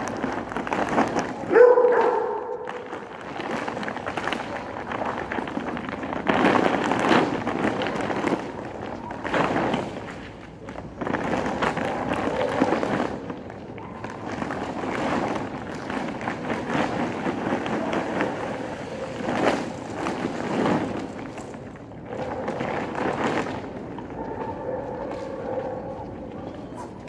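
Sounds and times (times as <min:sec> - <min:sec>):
dry dog food pouring onto concrete: 0:00.0 - 0:10.3
plastic sack rustling: 0:00.0 - 0:27.0
dogs eating: 0:22.0 - 0:27.0.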